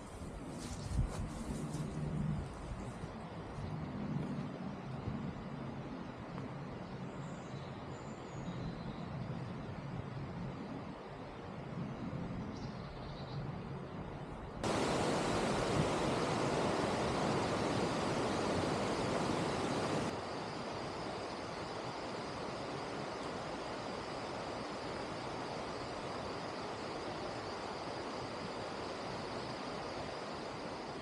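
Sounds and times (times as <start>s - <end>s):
steady rushing noise: 14.6s - 31.0s.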